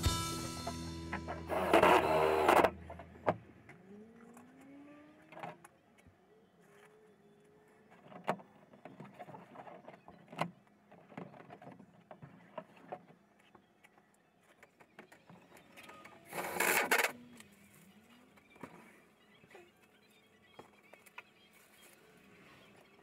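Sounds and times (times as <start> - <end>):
cordless drill driving screw: 1.5 - 2.8.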